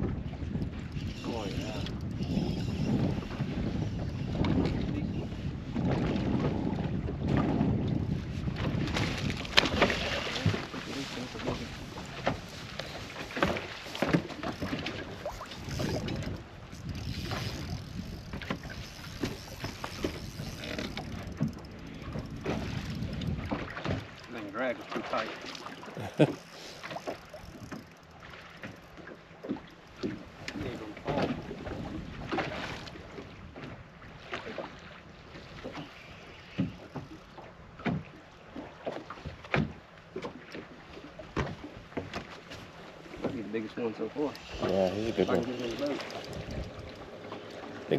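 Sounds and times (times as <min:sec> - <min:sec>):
wind rumbling on microphone: 0:00.0 - 0:24.2, 0:30.0 - 0:34.3, 0:44.4 - 0:47.9
small waves slapping boat hull: 0:00.0 - 0:47.9
light knocks from fishing gear: 0:41.3 - 0:43.5.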